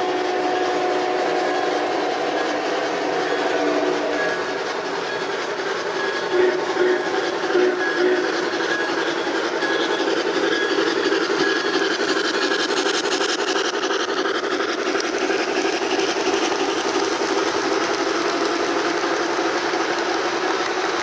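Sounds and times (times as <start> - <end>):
model train wheels clicking: 0.0 - 21.0.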